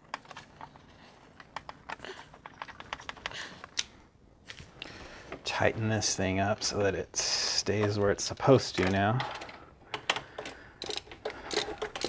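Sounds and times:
plastic and metal parts clicking: 0.0 - 3.9, 7.7 - 12.0.

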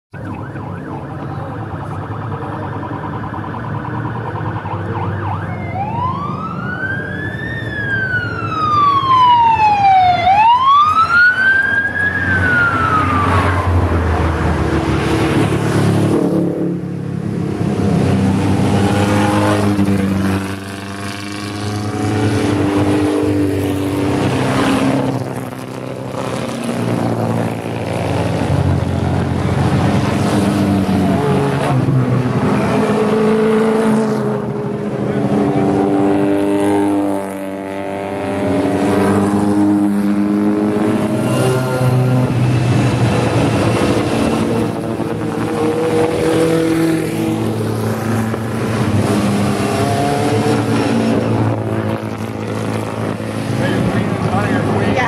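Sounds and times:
siren wailing: 0.1 - 14.9, 38.2 - 48.8
racing cars passing by: 0.2 - 55.0.

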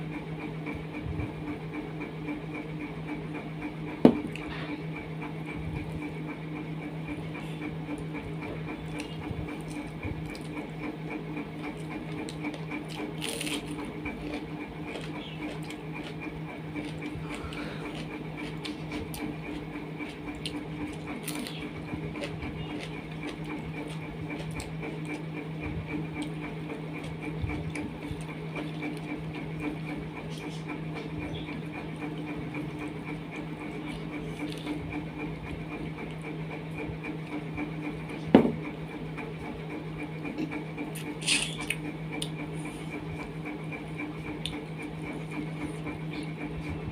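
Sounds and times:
pulsing mechanical hum: 0.0 - 46.9
chewing: 7.4 - 10.8, 11.6 - 25.3, 26.2 - 31.2, 33.4 - 35.0, 40.2 - 43.0.

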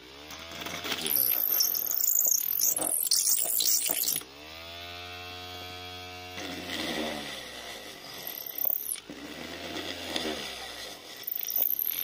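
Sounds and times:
drill bit drilling into wood: 1.0 - 4.2, 7.8 - 9.2, 11.1 - 12.0
electric drill motor whining: 7.2 - 9.2, 11.2 - 12.0.

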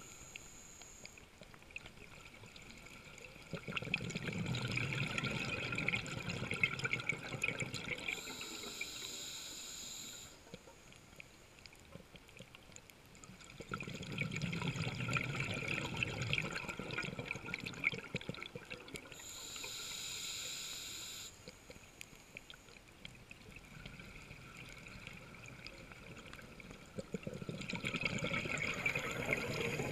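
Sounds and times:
bubbling exhalation underwater: 3.3 - 8.3, 13.6 - 19.1, 23.7 - 29.9
regulator hissing inhale: 8.1 - 10.4, 19.1 - 22.6.

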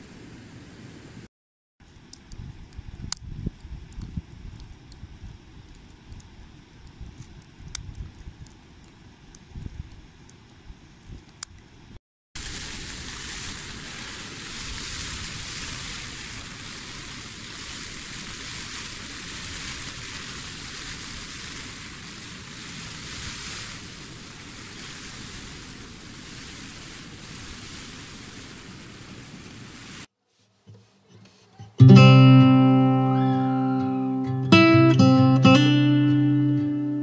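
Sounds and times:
weather hissing on tent fabric: 12.4 - 31.6.

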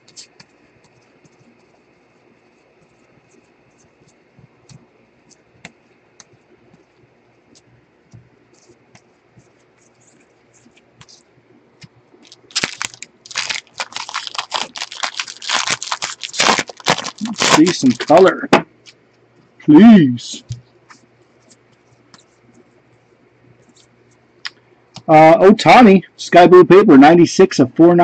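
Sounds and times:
wrapper crinkling and tearing: 12.2 - 18.4
cards flicking through a stack: 16.0 - 18.3.

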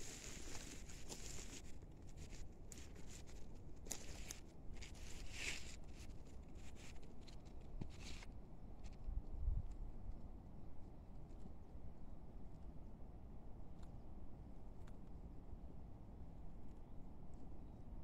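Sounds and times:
footsteps through grass: 0.0 - 8.3
wind rumble on microphone: 8.8 - 10.4.

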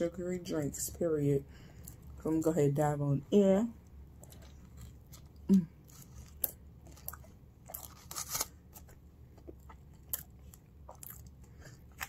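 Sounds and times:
person chewing: 4.2 - 12.0.

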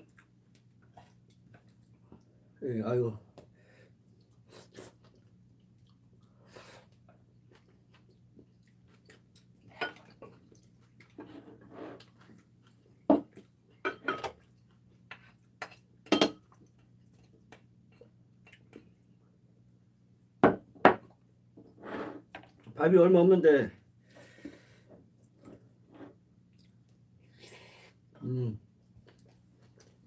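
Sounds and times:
cutlery clinking on ceramic dishes: 13.8 - 14.4, 15.6 - 16.4.

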